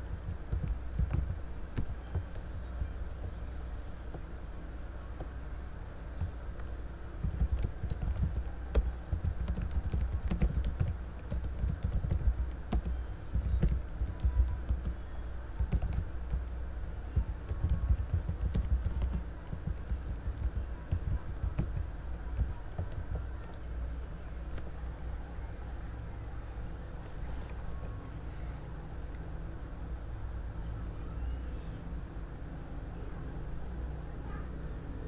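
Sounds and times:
typing on computer keyboard: 0.0s - 2.9s, 7.2s - 15.0s, 15.6s - 16.6s, 17.2s - 23.6s.

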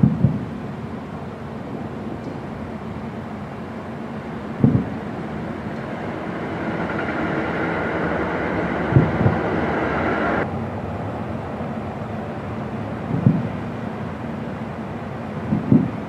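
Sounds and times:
steady rushing noise: 0.0s - 16.0s
distant fireworks booming: 4.4s - 9.7s.

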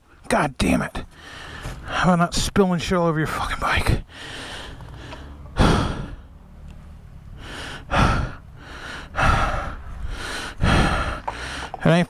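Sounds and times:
man gasping for breath: 4.1s - 6.3s, 7.4s - 11.8s.

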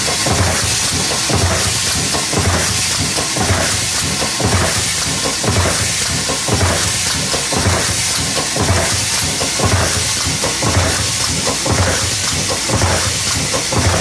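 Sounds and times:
press thudding: 0.1s - 14.0s.

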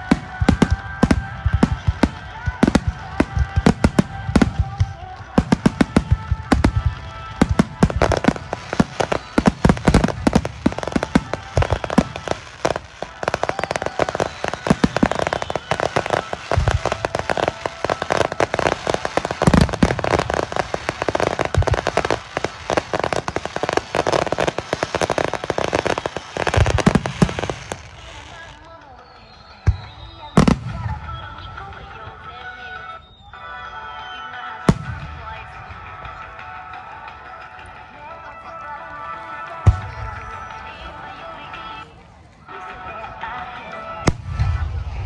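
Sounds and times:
fireworks bursting with crackling: 0.0s - 45.0s.

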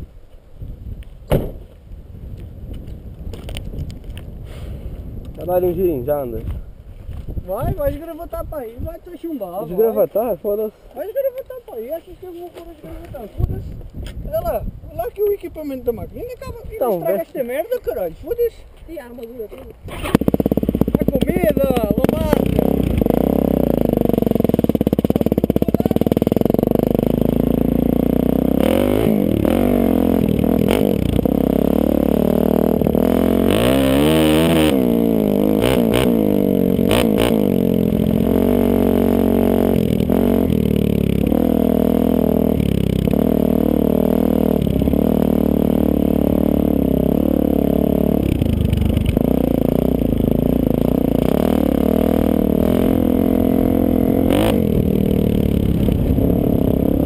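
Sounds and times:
dirt bike engine revving: 19.9s - 57.0s.

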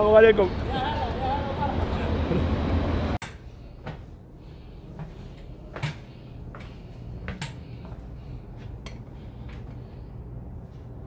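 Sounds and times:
faint steady background hum: 3.2s - 11.0s.

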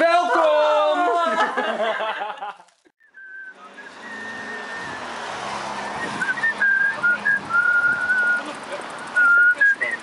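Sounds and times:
person whistling a tune: 3.0s - 8.4s, 9.2s - 10.0s
road traffic passing: 3.0s - 10.0s.

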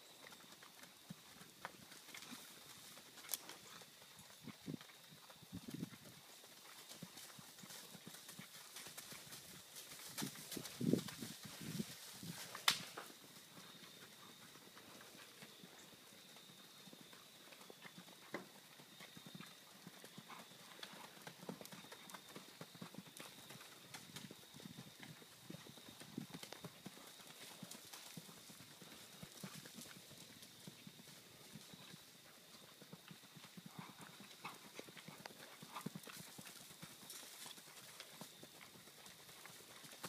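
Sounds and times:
horse hoofbeats on sand: 0.2s - 32.0s.

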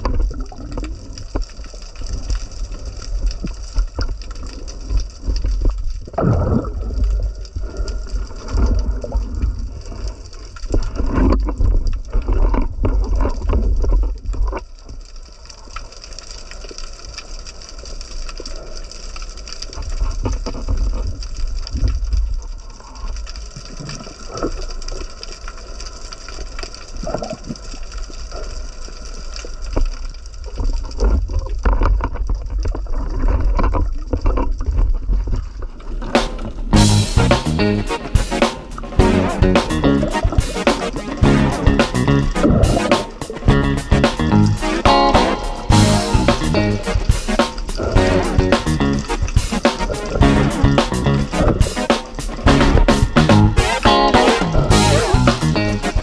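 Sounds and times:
underwater water rumble and gurgling: 0.0s - 36.0s.

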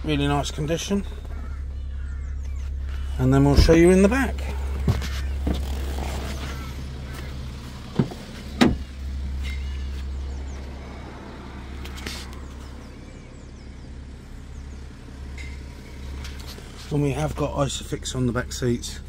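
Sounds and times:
diesel engine idling: 0.0s - 19.0s
car door clunks: 3.4s - 9.6s.

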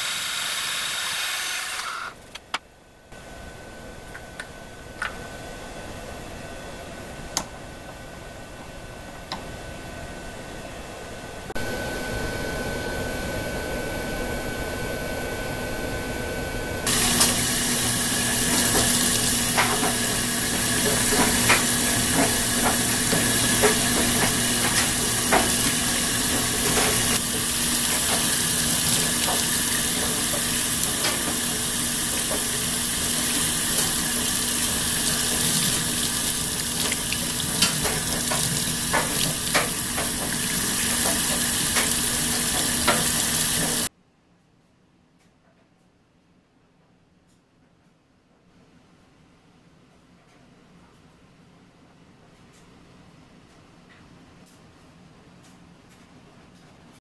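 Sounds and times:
faucet running into sink: 16.9s - 43.9s
toothbrush scrubbing metal piece: 16.9s - 43.9s.

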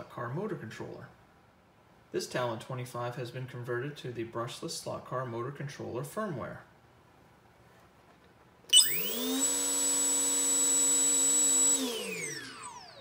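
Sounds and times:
electric motor whining: 8.7s - 13.0s.

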